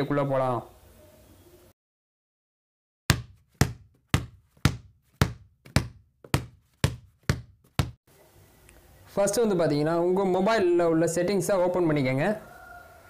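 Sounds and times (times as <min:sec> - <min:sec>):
sharp hollow knocks: 0:03.1 - 0:08.0.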